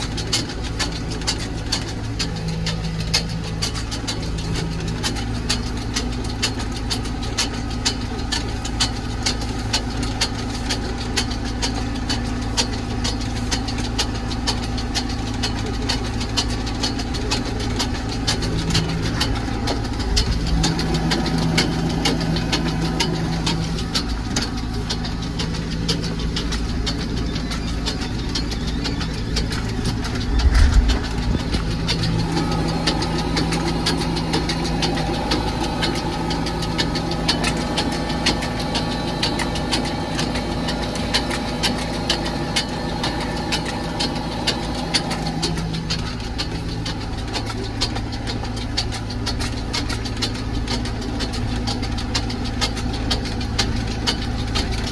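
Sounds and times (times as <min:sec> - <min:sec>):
constant fast rattling: 0:00.0 - 0:54.9
tractor diesel engine running: 0:00.0 - 0:54.9.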